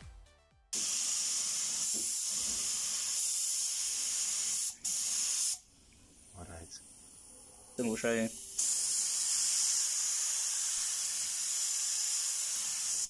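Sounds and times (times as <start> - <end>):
paint spray gun hissing: 0.7 - 5.6, 7.9 - 13.0.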